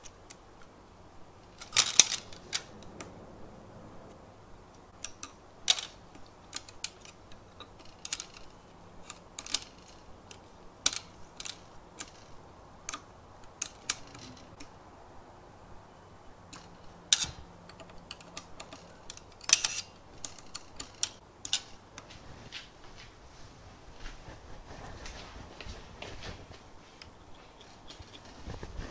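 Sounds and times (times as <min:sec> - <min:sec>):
plastic chain clicking: 0:01.4 - 0:03.2, 0:04.9 - 0:14.7, 0:16.5 - 0:22.1.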